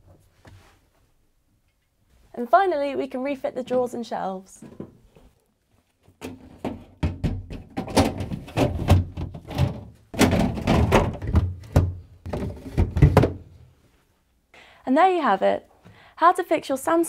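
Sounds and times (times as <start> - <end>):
plastic drawer knocks and thunks: 6.2 - 13.5.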